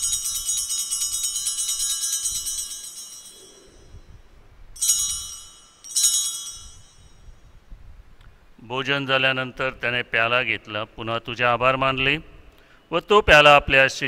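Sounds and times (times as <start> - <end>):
short bell rings: 0.0 - 4.1, 4.8 - 7.5
small bells jingling: 0.0 - 4.2, 4.8 - 7.6.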